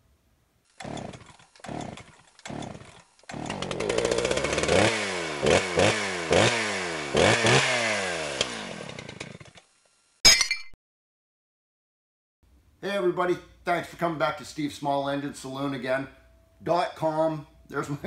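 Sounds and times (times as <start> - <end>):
pull cord starter pulls: 0.7 - 6.6, 7.2 - 9.7
small engine revving: 0.7 - 9.8.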